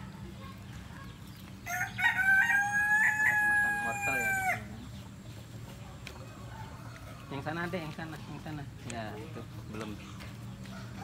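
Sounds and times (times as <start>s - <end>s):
rooster crowing: 1.7s - 4.7s.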